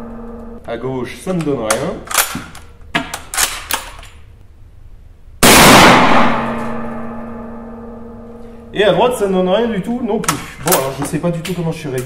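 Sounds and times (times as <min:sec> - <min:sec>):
rifle bolt clacking: 0:01.7 - 0:04.1
rifle shot ringing indoors: 0:05.4 - 0:08.7.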